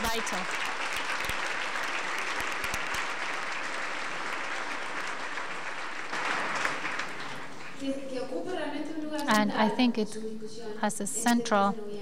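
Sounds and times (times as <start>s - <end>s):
audience applause: 0.0s - 7.8s.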